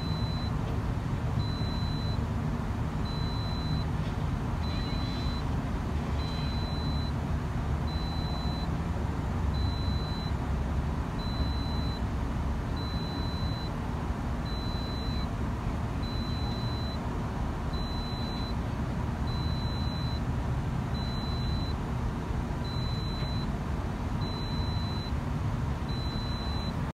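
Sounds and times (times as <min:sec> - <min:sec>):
warning beeps: 0:00.0 - 0:00.5, 0:01.4 - 0:02.2, 0:03.0 - 0:03.9, 0:04.6 - 0:05.5, 0:06.2 - 0:07.2, 0:07.9 - 0:08.7, 0:09.6 - 0:10.4, 0:11.2 - 0:12.0, 0:12.8 - 0:13.7, 0:14.4 - 0:15.3, 0:16.0 - 0:17.0, 0:17.7 - 0:18.6, 0:19.3 - 0:20.2, 0:21.0 - 0:21.8, 0:22.6 - 0:23.5, 0:24.2 - 0:25.2, 0:25.9 - 0:26.8
excavator diesel engine running: 0:00.0 - 0:26.9.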